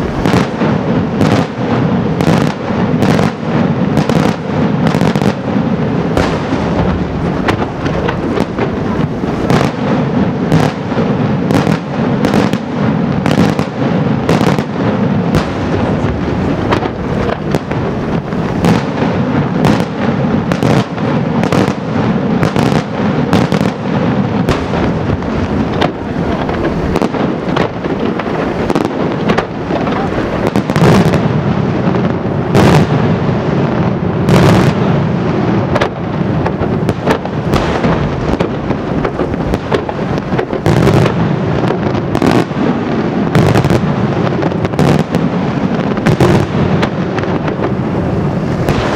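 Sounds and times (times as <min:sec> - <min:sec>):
fireworks bursting: 0:00.0 - 0:48.9.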